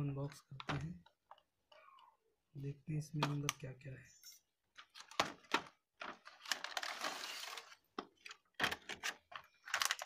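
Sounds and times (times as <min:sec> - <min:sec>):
plastic packaging crinkling: 0:04.9 - 0:10.0
packaging crackles and taps: 0:07.9 - 0:10.0.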